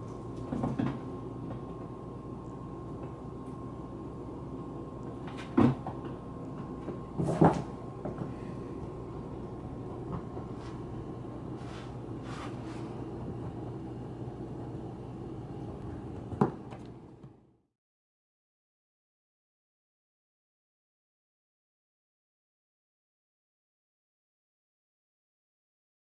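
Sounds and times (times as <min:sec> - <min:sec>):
steady low hum: 0:00.0 - 0:17.7.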